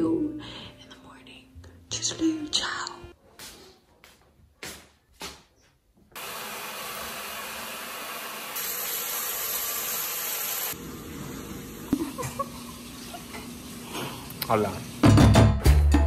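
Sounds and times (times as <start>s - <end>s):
shower water running: 6.2s - 15.3s.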